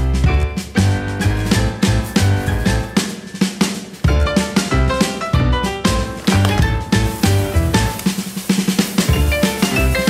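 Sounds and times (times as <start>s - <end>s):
fast drum strokes: 6.3s - 10.0s.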